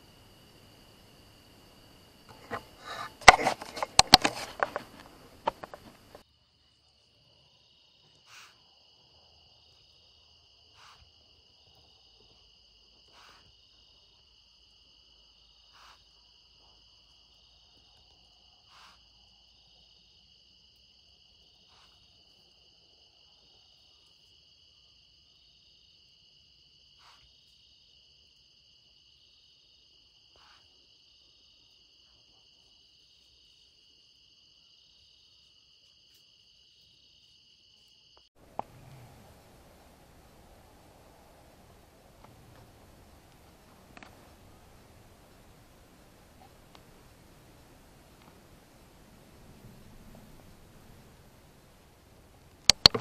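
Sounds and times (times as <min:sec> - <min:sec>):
crickets chirring: 0:00.0 - 0:53.0
close rustling with sharp knocks: 0:02.3 - 0:06.2, 0:52.7 - 0:53.0
faint click: 0:43.3 - 0:44.2, 0:52.5 - 0:53.0.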